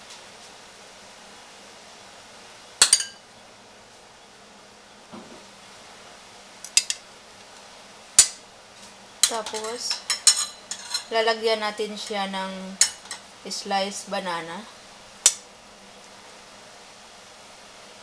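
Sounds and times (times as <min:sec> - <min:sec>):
metal spoon clinking on dishware: 0:02.8 - 0:03.2, 0:09.2 - 0:11.2, 0:12.8 - 0:13.2.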